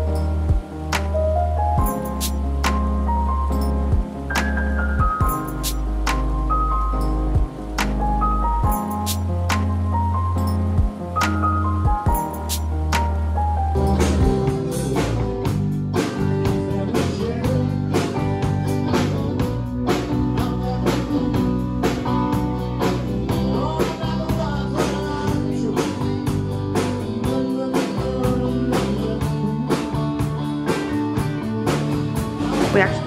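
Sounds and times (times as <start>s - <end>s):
live rock band playing: 10.6s - 33.0s
man singing: 14.2s - 15.4s, 16.4s - 22.2s, 22.8s - 26.2s, 26.9s - 30.3s.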